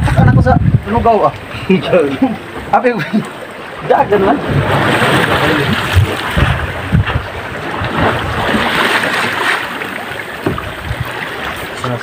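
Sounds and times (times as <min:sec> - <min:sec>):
wind buffeting microphone: 0:00.0 - 0:02.9, 0:03.5 - 0:12.0
sea water washing around hull: 0:00.0 - 0:12.0
dull low knocks: 0:04.4 - 0:08.6, 0:10.4 - 0:11.2.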